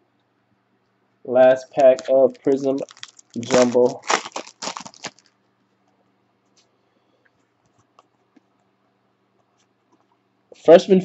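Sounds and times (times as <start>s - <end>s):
faint steady hum: 0.0s - 11.0s
trading cards and wrapper clicking: 1.6s - 5.3s.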